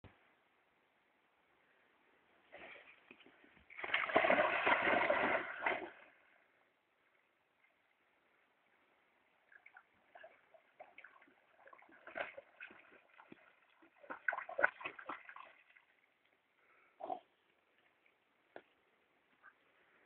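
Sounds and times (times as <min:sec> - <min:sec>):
dog splashing through water: 0:03.7 - 0:06.0, 0:09.6 - 0:16.0.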